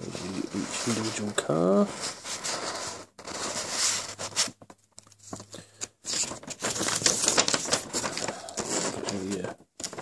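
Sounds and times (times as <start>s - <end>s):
paper leaflet rustling: 0.0s - 10.0s.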